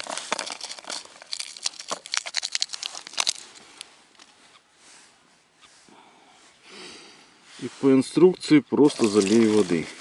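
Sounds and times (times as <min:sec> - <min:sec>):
paper sachet crinkling: 0:00.0 - 0:03.6, 0:08.8 - 0:10.0.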